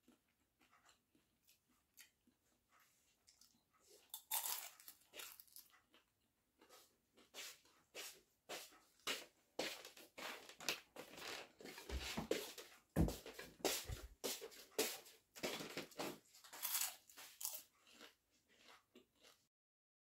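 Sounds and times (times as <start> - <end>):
crunching and chewing: 0.0 - 7.8, 15.4 - 19.5.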